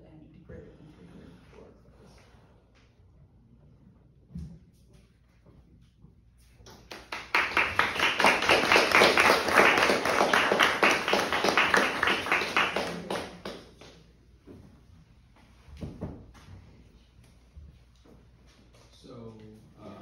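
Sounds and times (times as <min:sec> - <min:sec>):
audience applauding: 0:06.7 - 0:13.9.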